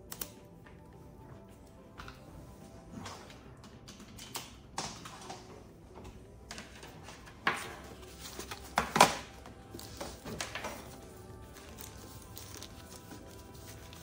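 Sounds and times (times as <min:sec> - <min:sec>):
plastic and paper rustling: 0:06.6 - 0:14.0.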